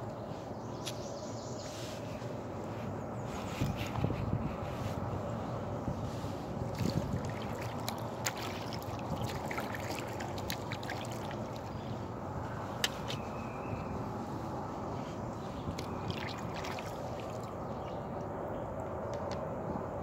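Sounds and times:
water gurgling and trickling: 6.6s - 11.9s, 15.4s - 17.7s
paddle splashes and drips: 6.6s - 12.0s, 15.4s - 17.6s.

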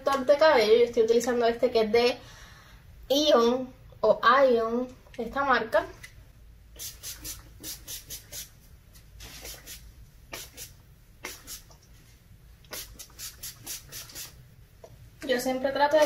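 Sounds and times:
spray bottle misting: 6.8s - 8.6s, 9.2s - 11.8s, 12.7s - 14.4s.

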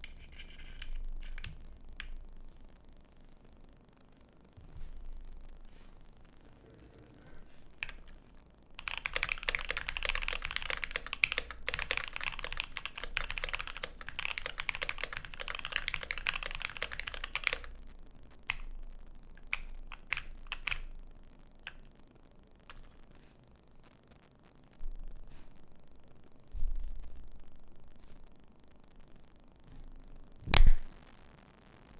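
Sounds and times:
mechanical keyboard typing: 8.8s - 17.7s, 19.4s - 20.9s.

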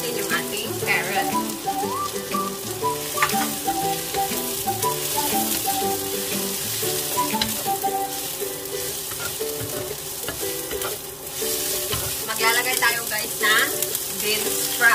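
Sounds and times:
light background music: 0.0s - 14.9s
vegetables sizzling in hot oil: 0.0s - 14.9s
wooden spatula stirring in wok: 0.0s - 14.9s.

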